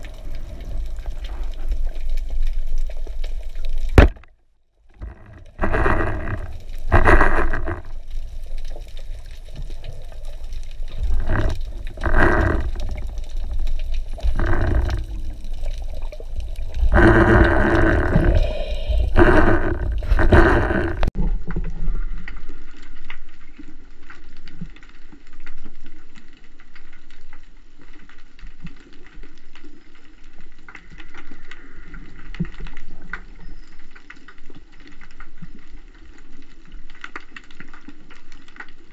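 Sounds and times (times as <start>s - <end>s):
steady underwater hiss: 0.0s - 3.9s, 5.6s - 21.1s
underwater rushing bubbling water: 0.0s - 4.3s, 5.0s - 22.7s.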